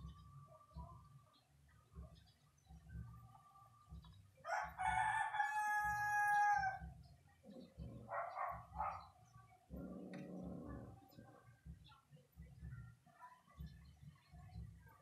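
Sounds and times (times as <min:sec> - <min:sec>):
rooster crowing: 0:04.4 - 0:06.8.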